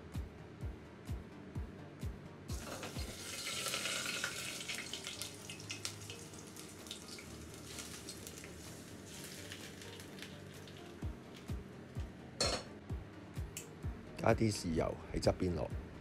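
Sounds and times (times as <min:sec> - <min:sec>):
hot oil sizzling on fish: 0:02.5 - 0:11.1.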